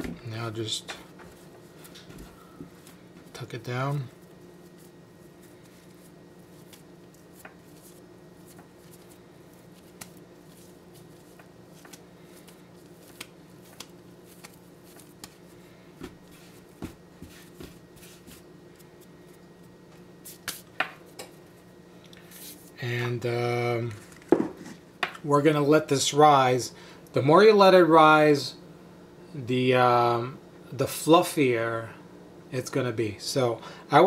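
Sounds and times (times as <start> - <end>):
low background hum: 0.0 - 34.0
hands patting bread dough: 0.8 - 21.1.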